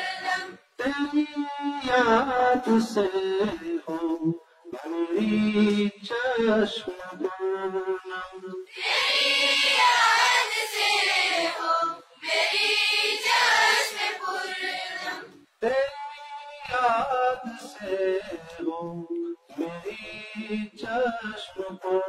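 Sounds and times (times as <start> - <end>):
children singing in chorus: 0.0 - 0.6, 8.7 - 15.4
single voice singing: 0.0 - 22.0.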